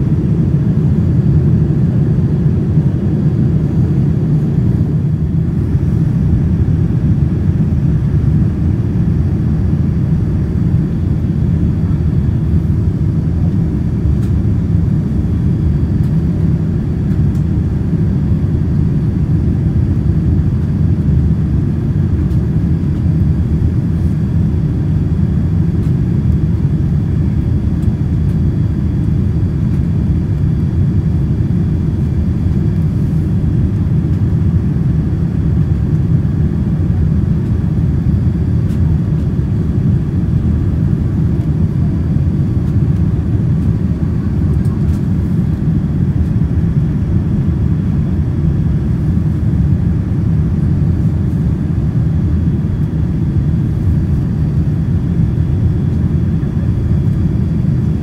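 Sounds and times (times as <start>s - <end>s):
airplane cabin engine rumble: 0.0s - 58.0s.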